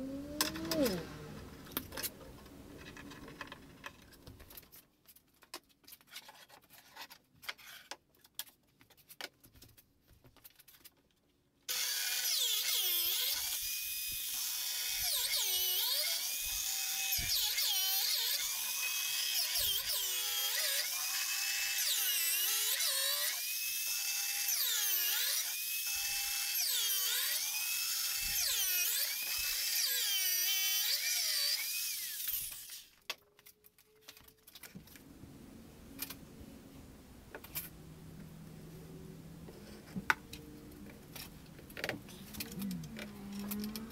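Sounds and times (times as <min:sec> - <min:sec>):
power tool whining on wood: 0:11.7 - 0:32.9.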